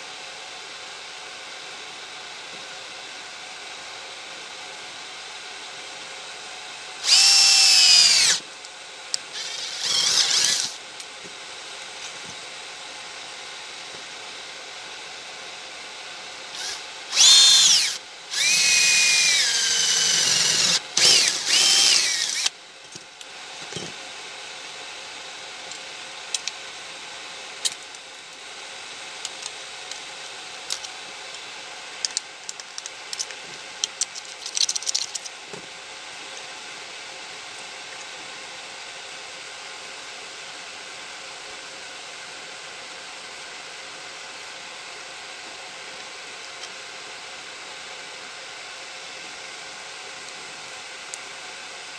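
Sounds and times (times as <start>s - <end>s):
cordless drill drilling metal: 7.0s - 8.5s, 9.2s - 10.9s, 16.4s - 22.6s.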